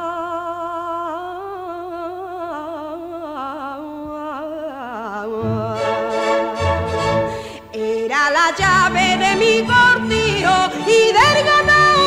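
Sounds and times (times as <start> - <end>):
woman singing with vibrato: 0.0 - 12.0
orchestral accompaniment chords: 5.4 - 7.7, 8.6 - 12.0.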